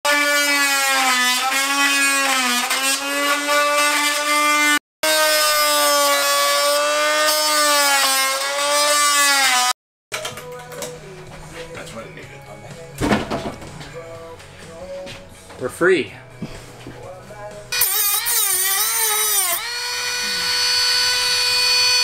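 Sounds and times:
oscillating multi-tool cutting: 0.1s - 9.8s, 17.7s - 22.0s.

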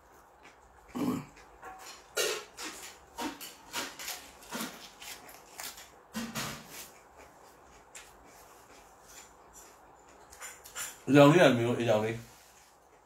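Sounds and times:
man chewing food: 0.0s - 11.1s.

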